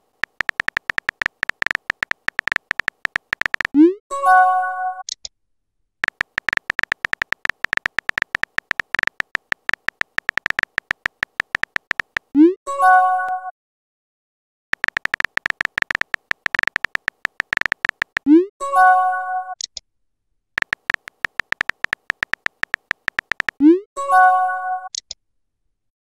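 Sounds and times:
keyboard tapping clicks: 0:00.0 - 0:03.8, 0:06.0 - 0:12.4, 0:14.8 - 0:18.3, 0:20.6 - 0:23.7.

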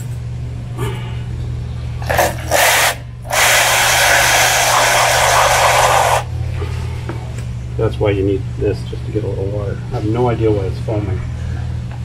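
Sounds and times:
hose nozzle spraying water into tub: 0:02.0 - 0:06.3.

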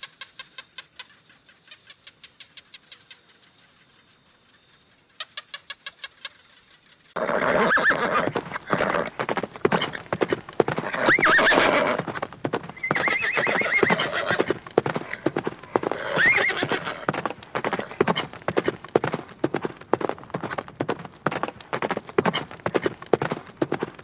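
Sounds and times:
hooves clip-clopping: 0:07.2 - 0:24.0
horse whinnying: 0:07.2 - 0:24.0.

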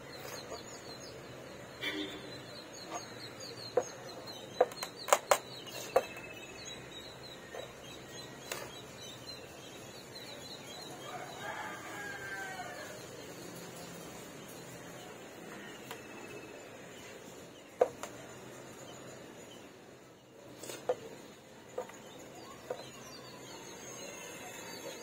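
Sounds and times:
rooster crowing: 0:11.0 - 0:13.0.

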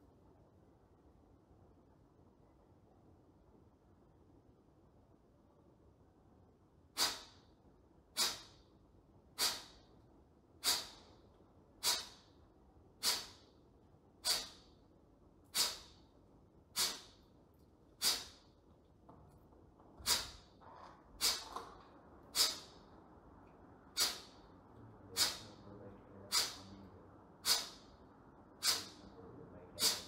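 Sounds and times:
forceful exhalations through nose: 0:06.9 - 0:07.5, 0:08.2 - 0:08.6, 0:09.4 - 0:09.9, 0:10.6 - 0:11.2, 0:11.8 - 0:12.4, 0:13.0 - 0:13.5, 0:14.2 - 0:14.7, 0:15.4 - 0:16.1, 0:16.7 - 0:17.2, 0:18.0 - 0:18.5, 0:20.0 - 0:20.5, 0:21.2 - 0:21.6, 0:22.3 - 0:22.8, 0:23.9 - 0:24.4, 0:25.1 - 0:25.6, 0:26.3 - 0:26.7, 0:27.4 - 0:27.9, 0:28.6 - 0:29.1, 0:29.8 - 0:30.0.

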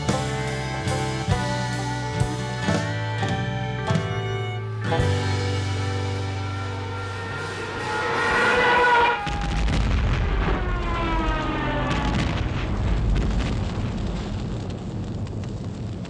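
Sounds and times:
diving warplane falling whine: 0:05.7 - 0:12.5
heavy explosion rumble: 0:09.2 - 0:16.0.

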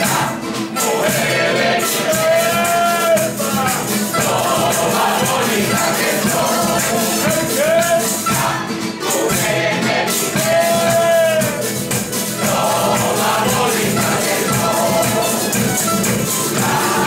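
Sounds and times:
hand percussion rhythm: 0:00.0 - 0:17.0.

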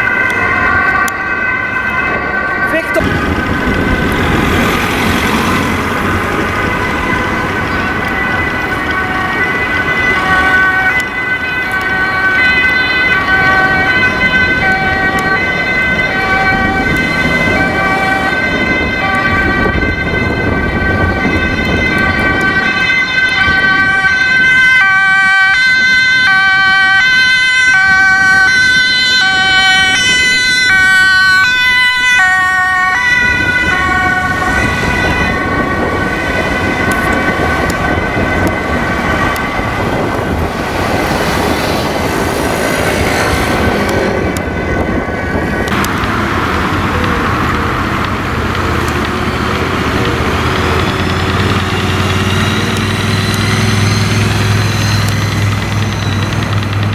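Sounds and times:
city traffic noise: 0:00.0 - 0:56.9
two-tone ambulance siren: 0:00.0 - 0:56.9
steady high tone: 0:37.8 - 0:56.9.

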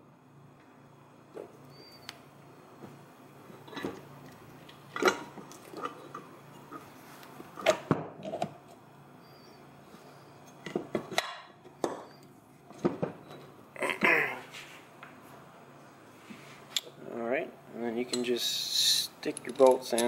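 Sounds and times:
metal parts clinking and knocking: 0:19.2 - 0:20.0.

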